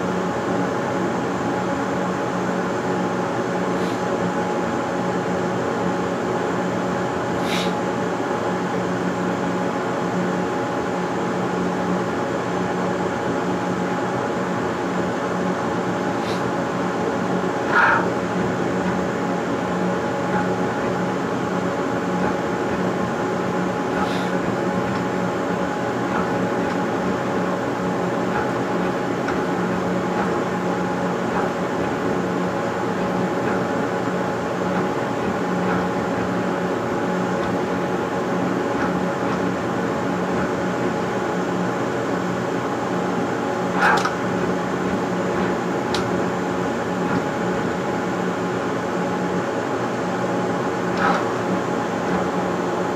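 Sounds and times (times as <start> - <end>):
stepper motors humming: 15.8 - 52.9
sharp click: 43.8 - 44.2.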